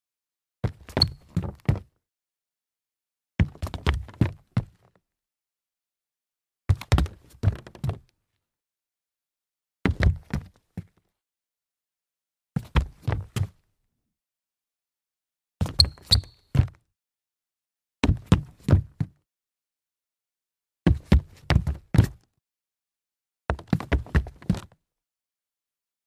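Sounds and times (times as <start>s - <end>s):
short high squeaks: 1.0s - 1.3s, 15.8s - 16.5s.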